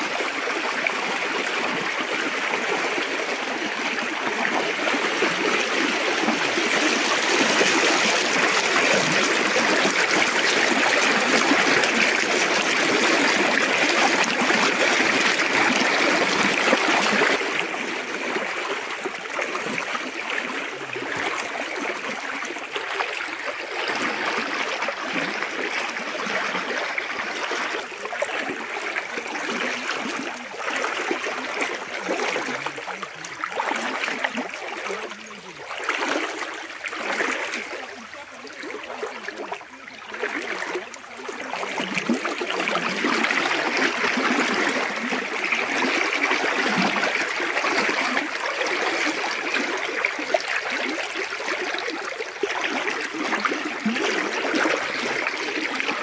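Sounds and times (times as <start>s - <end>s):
stream rushing: 0.0s - 39.1s.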